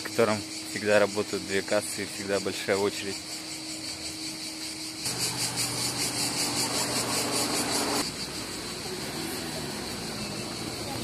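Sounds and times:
insects chirring: 0:00.0 - 0:11.0
vehicle engine humming: 0:03.2 - 0:11.0.

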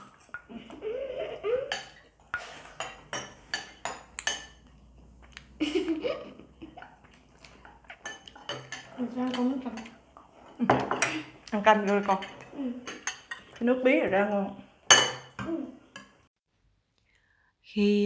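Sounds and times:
cutlery clinking on ceramic bowls: 0:00.0 - 0:04.8, 0:06.7 - 0:16.2.

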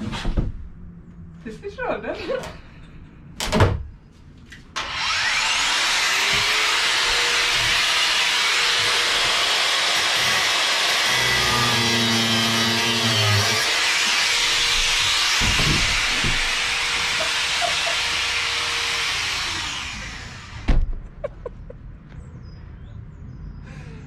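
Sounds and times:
angle grinder whining: 0:04.8 - 0:20.8
heavy thump of caravan tipping: 0:15.2 - 0:16.6.

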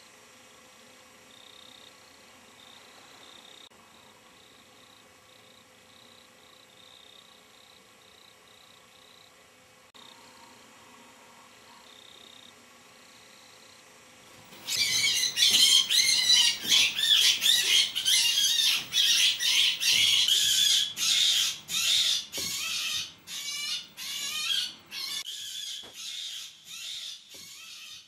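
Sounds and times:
rabbit screaming: 0:14.5 - 0:28.0.

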